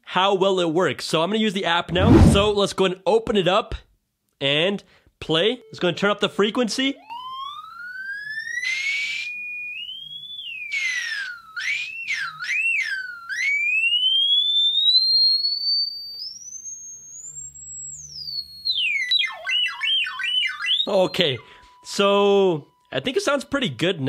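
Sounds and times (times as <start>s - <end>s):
gliding pure tone from speaker: 1.9s - 2.6s.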